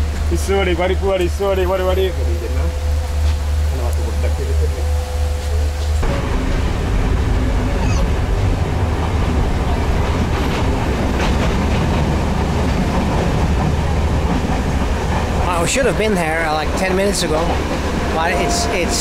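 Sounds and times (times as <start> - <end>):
train wheels rumbling on rails: 0.0 - 19.0
faint rail clacks: 8.5 - 19.0.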